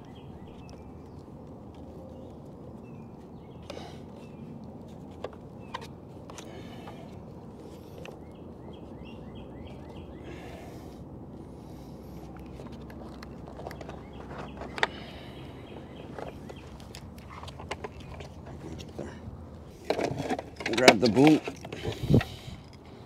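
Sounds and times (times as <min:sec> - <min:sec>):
bird chirping: 0:00.0 - 0:19.8.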